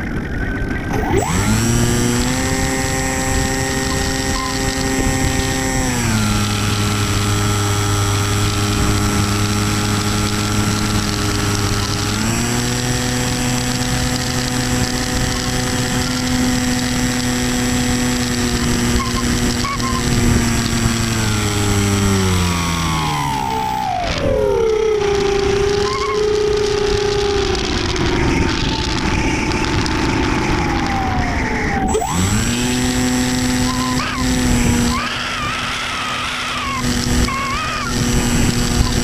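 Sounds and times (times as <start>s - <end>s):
electric motor and propeller whining: 0.0s - 39.0s.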